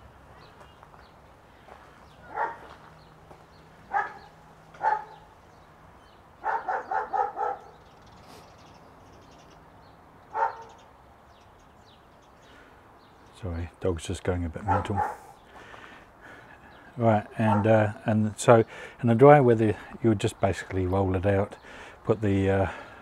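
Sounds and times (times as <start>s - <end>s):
dog barking: 2.2s - 2.7s, 3.9s - 5.3s, 6.4s - 7.8s, 10.3s - 10.8s, 14.7s - 15.4s, 17.5s - 17.7s.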